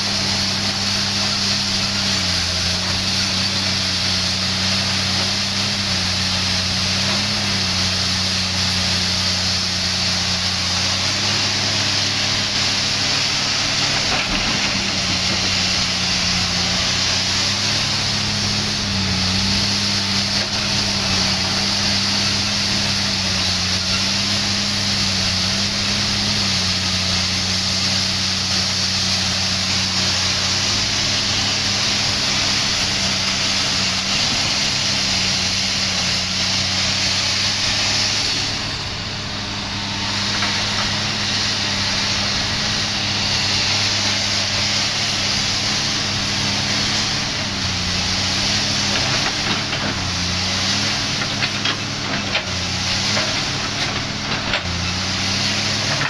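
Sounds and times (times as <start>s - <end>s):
excavator diesel engine running: 0.0s - 56.0s.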